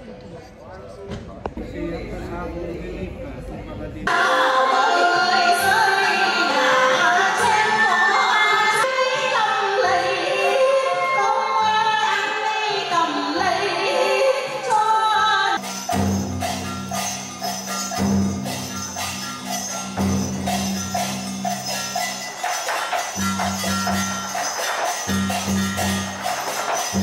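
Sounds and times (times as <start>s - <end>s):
woman singing a folk melody: 4.1s - 15.6s
percussion-led music: 4.1s - 27.0s
instrumental accompaniment: 15.6s - 27.0s.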